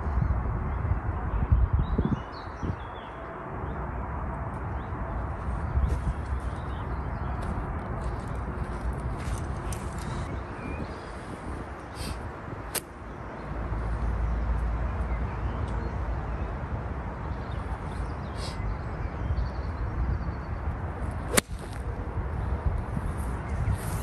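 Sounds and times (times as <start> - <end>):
wind rumble on microphone: 0.0 - 24.0
golf club striking ball: 21.3 - 21.8.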